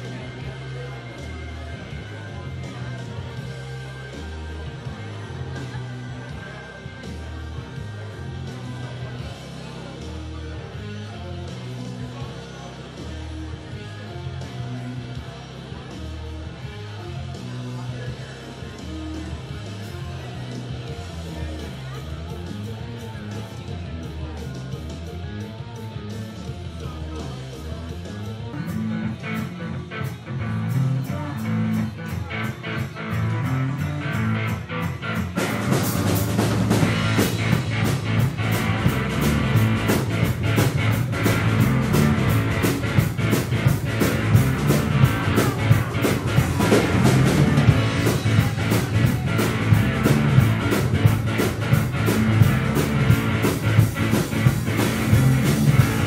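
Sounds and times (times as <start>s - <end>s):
drums and cymbals: 0.0s - 56.0s
live rock band playing: 0.0s - 56.0s
electric guitar: 28.0s - 56.0s.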